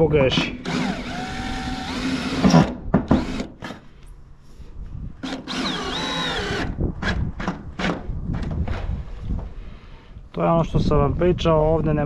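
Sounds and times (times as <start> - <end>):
cordless drill into steel sheet: 0.6 - 3.8, 5.2 - 7.2.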